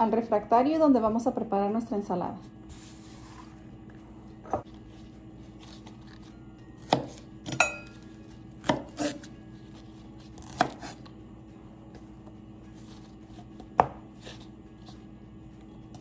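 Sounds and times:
knife chopping on wooden board: 0:06.8 - 0:07.6, 0:08.6 - 0:09.3, 0:10.4 - 0:11.0, 0:13.4 - 0:14.4.

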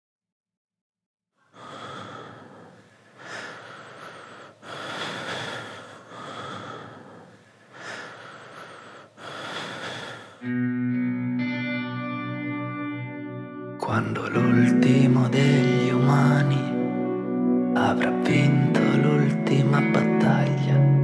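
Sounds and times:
person breathing heavily: 0:01.4 - 0:10.5
guitar music: 0:10.4 - 0:21.0.

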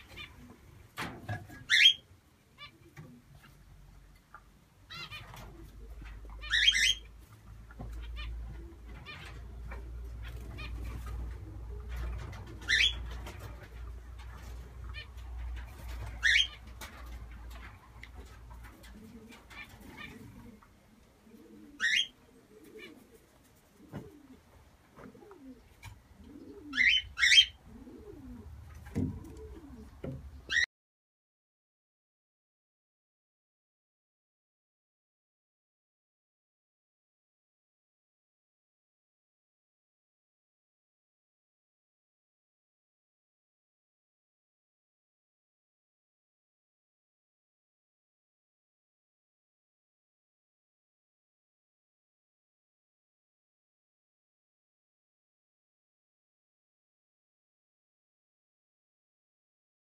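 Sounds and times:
pigeon cooing: 0:00.0 - 0:30.7
sharp high bird calls: 0:06.4 - 0:07.1.

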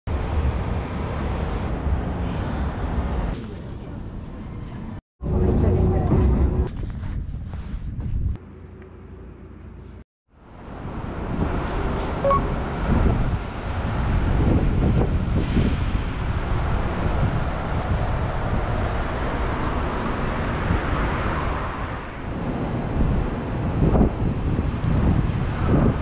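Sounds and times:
wind noise on microphone: 0:05.3 - 0:08.4, 0:10.6 - 0:26.0.

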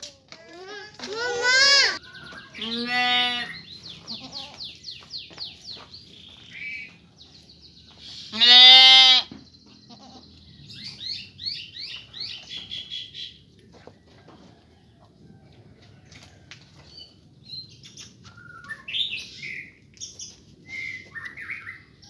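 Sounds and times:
goats and sheep bleating: 0:00.0 - 0:04.8, 0:08.2 - 0:10.4
small birds chirping: 0:01.6 - 0:13.8, 0:17.0 - 0:22.0.

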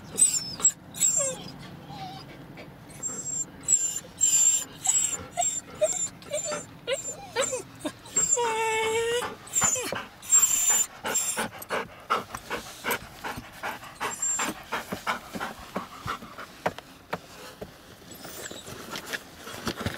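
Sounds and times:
dog panting hard: 0:04.8 - 0:07.2, 0:07.9 - 0:16.8.

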